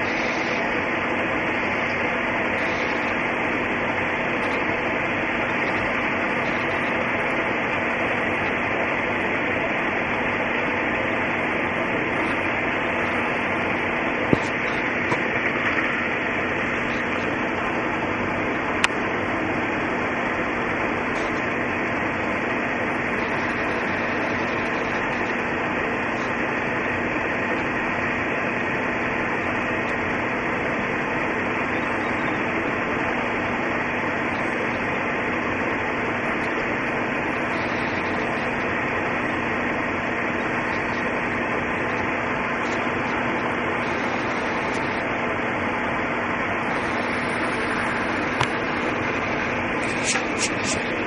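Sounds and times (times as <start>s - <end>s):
steady hiss: 0.0s - 27.3s, 41.2s - 51.0s
faint hum: 0.0s - 51.0s.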